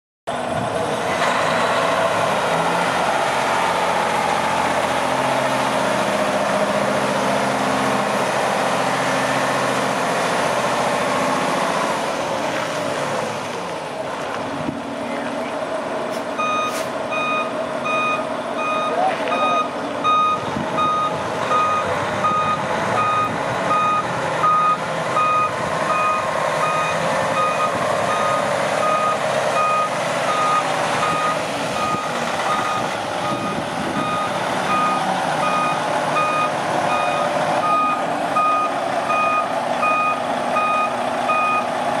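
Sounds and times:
diesel engine running: 0.3s - 42.0s
truck back-up alarm beeping: 16.3s - 41.8s.

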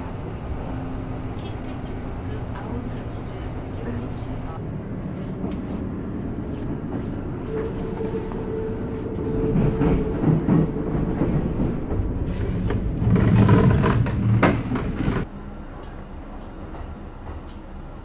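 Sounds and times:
train carriage rumble: 0.0s - 18.0s.

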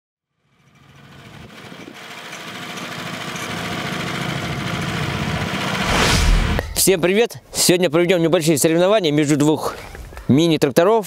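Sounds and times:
small tractor engines running: 0.3s - 6.0s.

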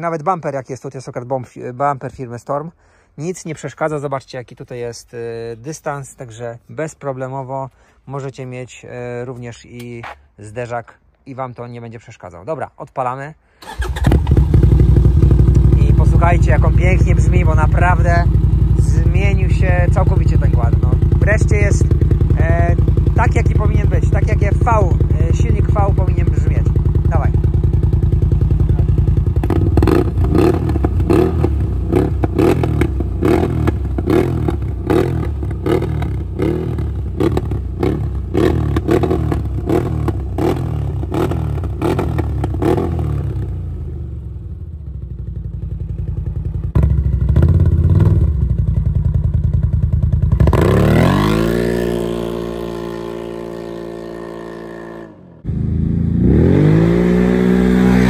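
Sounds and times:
engine idling: 13.6s - 31.2s
v-twin engine revving: 13.6s - 58.0s.

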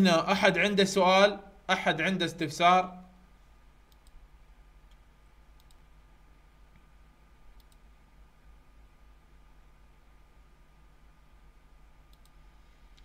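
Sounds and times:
faint steady hum: 0.0s - 13.0s
computer mouse clicks: 3.9s - 4.2s, 4.9s - 5.9s, 7.5s - 7.9s, 12.1s - 13.0s.

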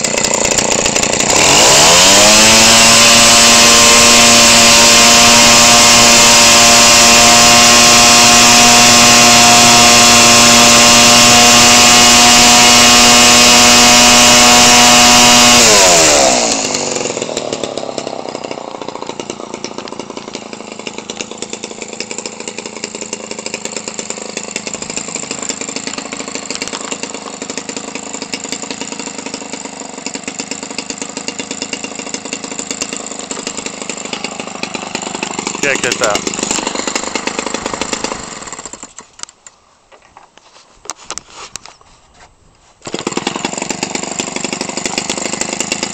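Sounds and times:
model airplane engine running: 35.5s - 36.4s.

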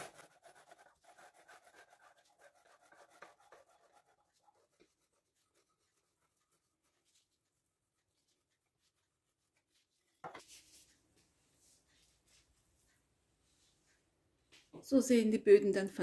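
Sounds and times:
knife sawing through cake: 0.0s - 7.0s.

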